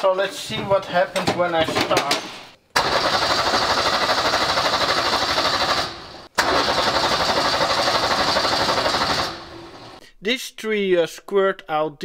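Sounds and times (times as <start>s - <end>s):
diesel engine cranking on starter: 2.8s - 10.0s.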